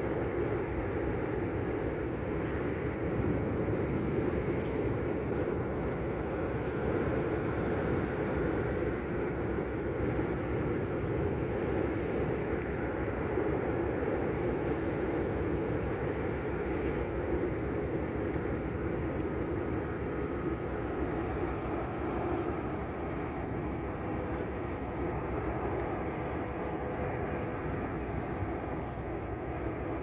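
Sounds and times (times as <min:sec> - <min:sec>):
airplane flying overhead: 0:00.0 - 0:30.0.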